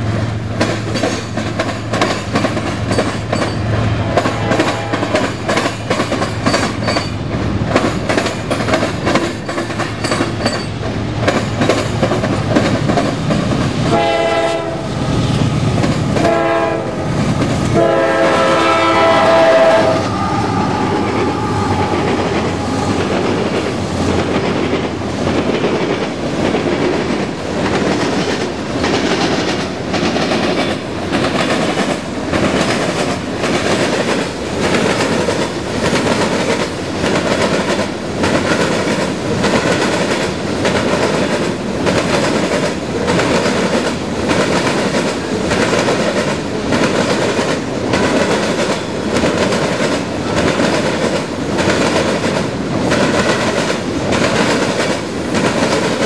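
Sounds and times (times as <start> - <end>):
train wheels clattering over rail joints: 0.5 - 14.7, 15.3 - 19.6, 21.8 - 56.0
diesel locomotive horn blasts: 3.9 - 5.4, 13.8 - 15.0, 16.2 - 23.0.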